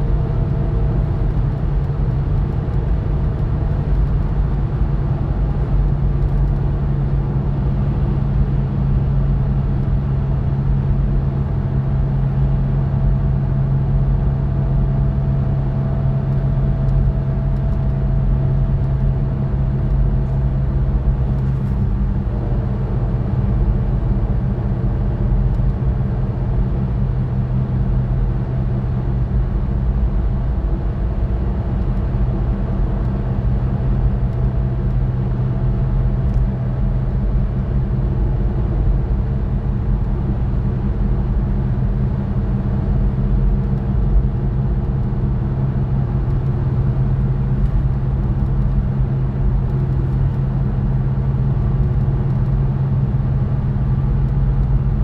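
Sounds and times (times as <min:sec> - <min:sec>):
car cabin road noise: 0:14.1 - 0:27.2, 0:27.8 - 0:55.0.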